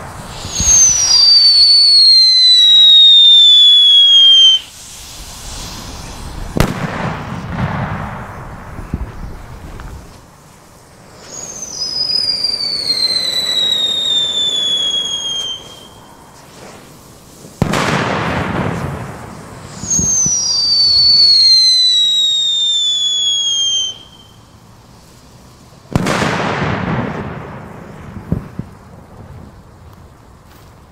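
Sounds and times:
falling firework whistle: 0:00.0 - 0:25.2, 0:25.8 - 0:30.6
firework bang with echo: 0:04.5 - 0:09.2, 0:17.6 - 0:20.3, 0:25.9 - 0:28.8.

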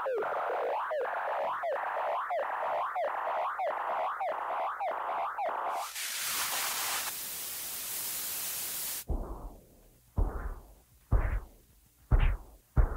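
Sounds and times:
static-like hiss: 0:05.0 - 0:12.9
heavy thuds: 0:09.1 - 0:12.9.

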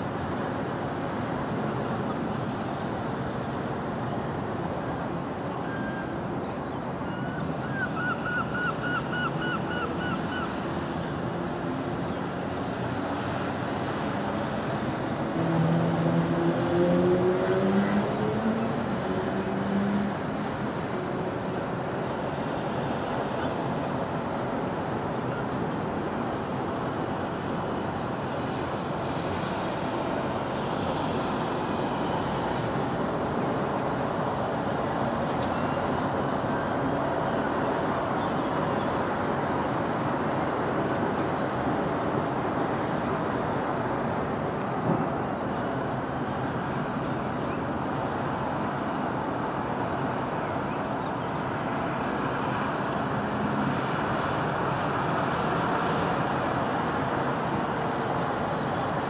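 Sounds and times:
road traffic noise: 0:00.0 - 0:59.0
vehicle engine accelerating: 0:15.4 - 0:20.1.

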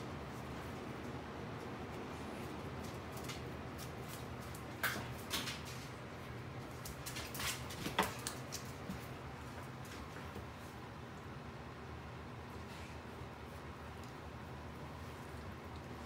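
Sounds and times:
low room hum: 0:00.0 - 0:16.0
dog claws clicking on concrete: 0:02.8 - 0:05.9, 0:06.6 - 0:09.1.

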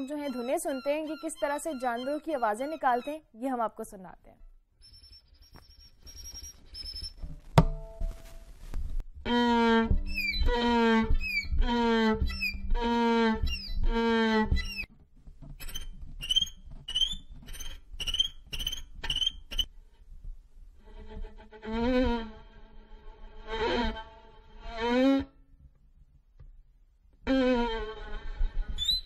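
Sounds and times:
violin high chirps: 0:00.0 - 0:03.2, 0:09.3 - 0:14.9, 0:15.6 - 0:19.7, 0:28.7 - 0:29.0
violin squeaks: 0:00.0 - 0:03.3, 0:04.8 - 0:07.4, 0:09.3 - 0:19.7, 0:27.2 - 0:29.0
knock: 0:07.6 - 0:07.8
violin bowed hee-haw strokes: 0:09.2 - 0:14.9.

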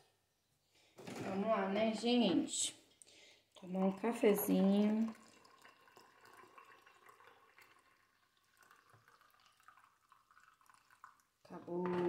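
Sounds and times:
small drips: 0:02.9 - 0:11.6
liquid pouring into a mug: 0:03.6 - 0:12.0.

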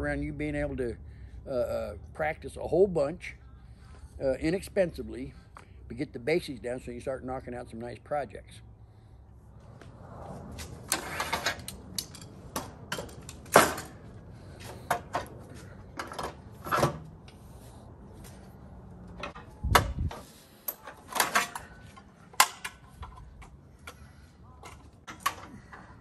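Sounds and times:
metal parts clanking: 0:10.9 - 0:14.0, 0:20.1 - 0:24.0.

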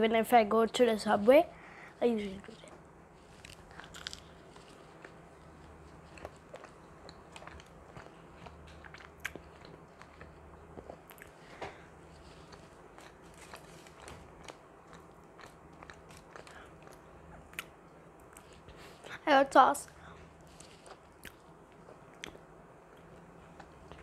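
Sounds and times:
faint low hum: 0:00.0 - 0:24.0
person chewing sandwich: 0:03.0 - 0:19.1, 0:20.0 - 0:24.0.

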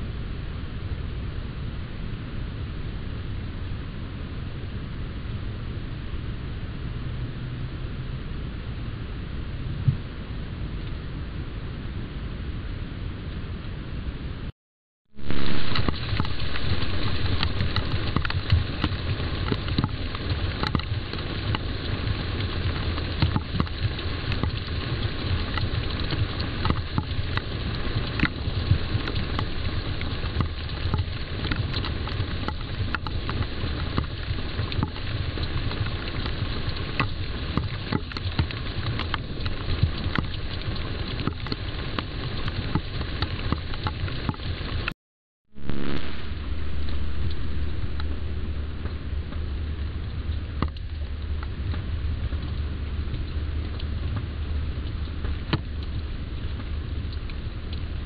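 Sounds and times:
low hum: 0:15.1 - 0:36.6, 0:45.5 - 0:58.0
crackling hiss: 0:15.1 - 0:44.9, 0:45.5 - 0:58.0
faint clicks: 0:15.7 - 0:21.6.

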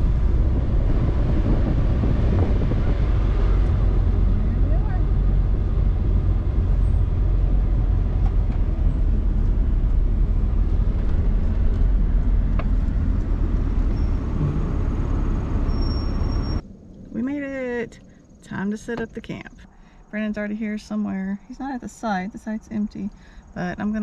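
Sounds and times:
road and engine rumble in vehicle: 0:00.0 - 0:24.0.

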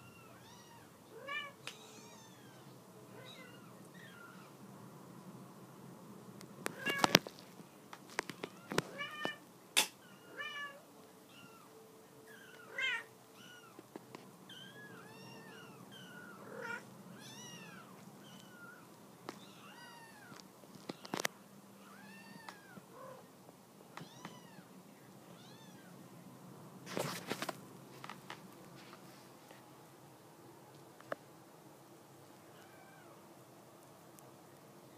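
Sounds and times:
kittens mewing: 0:14.5 - 0:20.4.

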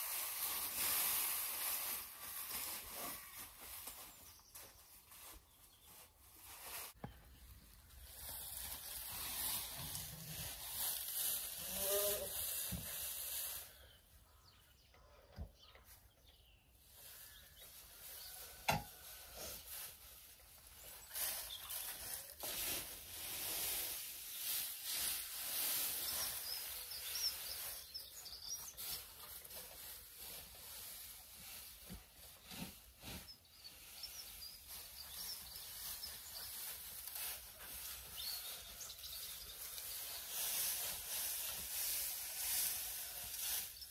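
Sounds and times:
pitchfork shaking dry straw: 0:00.0 - 0:07.0, 0:07.8 - 0:13.8, 0:16.9 - 0:43.9
birds chirping: 0:26.0 - 0:29.4.

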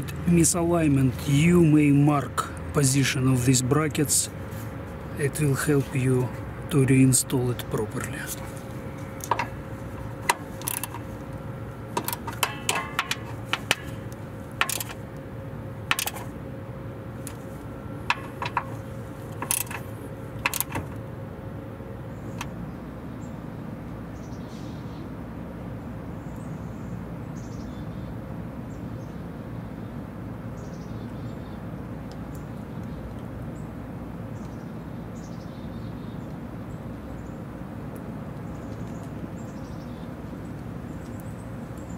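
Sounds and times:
ratchet wrench clicking: 0:09.2 - 0:11.2, 0:12.0 - 0:15.0, 0:15.9 - 0:16.3, 0:18.1 - 0:21.0.

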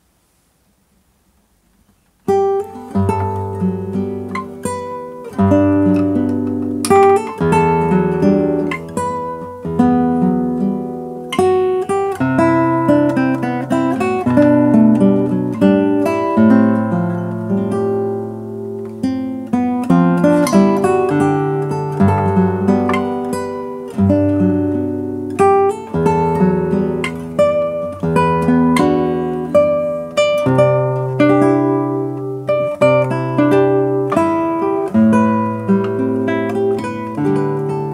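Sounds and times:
classical guitar fingerstyle solo: 0:01.9 - 0:37.9.

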